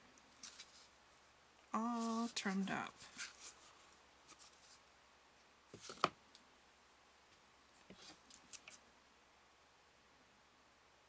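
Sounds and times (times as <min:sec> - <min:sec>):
cardboard rustling: 0:03.0 - 0:04.8, 0:05.7 - 0:06.1.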